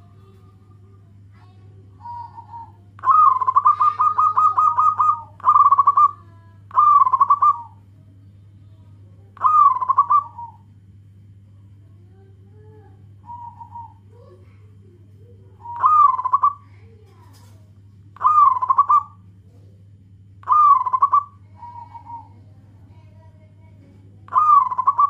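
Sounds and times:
dove cooing: 0:00.0 - 0:08.0, 0:09.3 - 0:10.7, 0:12.6 - 0:17.5, 0:18.2 - 0:19.6, 0:20.4 - 0:23.1, 0:24.3 - 0:25.0
low hum: 0:00.0 - 0:25.0.

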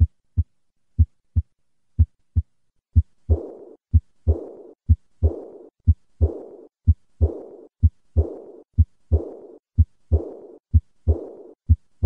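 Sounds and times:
heart murmur: 0:00.0 - 0:12.0
heartbeat through stethoscope: 0:00.0 - 0:12.0.

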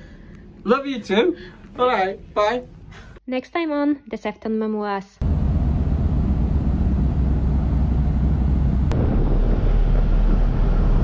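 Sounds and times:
ship engines: 0:05.2 - 0:11.0
ship wake: 0:05.2 - 0:11.0.

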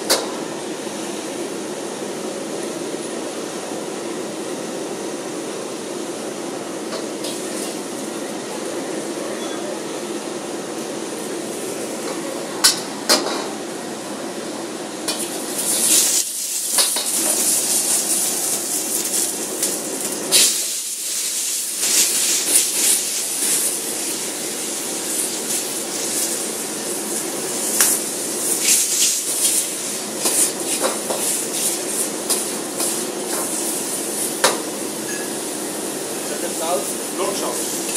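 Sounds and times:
gas burner rushing noise: 0:00.0 - 0:37.9
food sizzling in hot pan: 0:07.1 - 0:08.0, 0:15.1 - 0:37.9.

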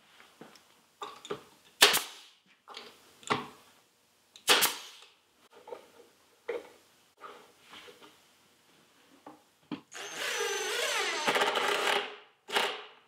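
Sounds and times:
nail gun shots: 0:01.8 - 0:02.3, 0:04.4 - 0:05.0.

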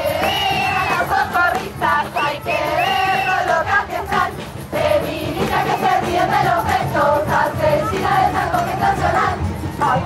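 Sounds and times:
women singing a chant: 0:00.0 - 0:10.0.

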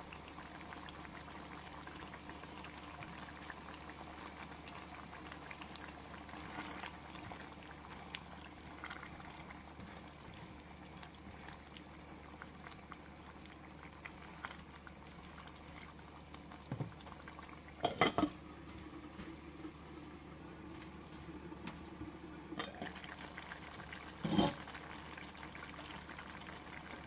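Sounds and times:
stew bubbling: 0:00.0 - 0:18.3, 0:22.6 - 0:27.0
glass lid clattering on pot: 0:17.8 - 0:18.3
spatula scraping pot: 0:24.2 - 0:24.6.

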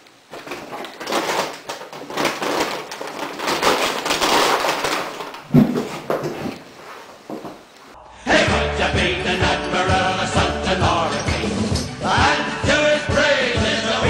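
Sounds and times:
paper bag crinkling: 0:00.3 - 0:07.7.

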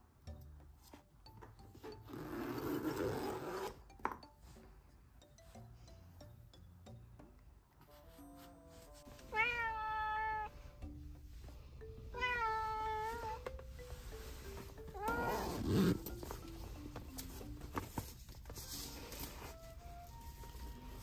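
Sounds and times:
cat meowing: 0:09.3 - 0:10.6, 0:12.2 - 0:13.4, 0:15.0 - 0:15.6.

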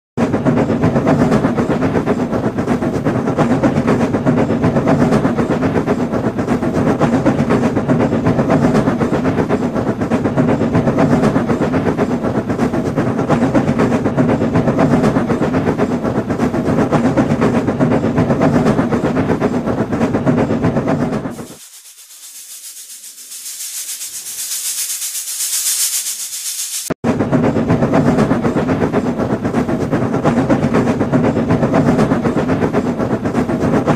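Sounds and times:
steam locomotive running: 0:00.2 - 0:33.9
high hiss: 0:21.3 - 0:27.0.

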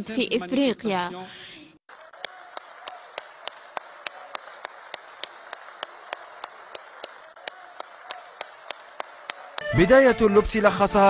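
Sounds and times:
rhythmic hand clapping: 0:01.9 - 0:09.8.

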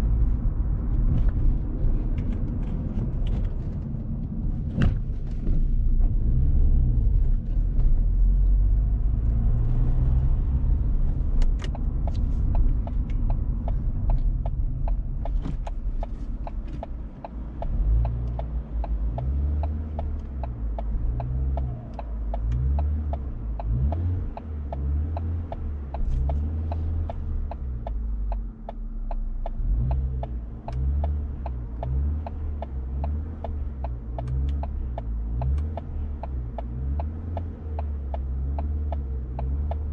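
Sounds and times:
engine and road rumble: 0:00.0 - 0:39.9
even ticking: 0:10.2 - 0:39.9.

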